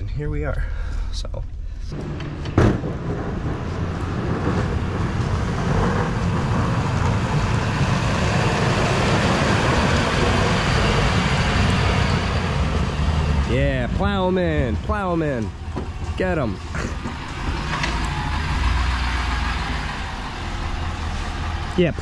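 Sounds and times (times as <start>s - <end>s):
trucks passing on slushy road: 2.0s - 22.0s
sharp thump: 2.1s - 3.8s.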